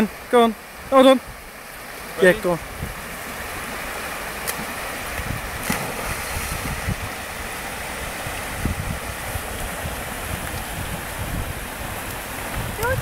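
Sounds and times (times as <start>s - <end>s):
river rushing: 0.0s - 13.0s
wind buffeting microphone: 2.3s - 3.9s, 4.7s - 13.0s.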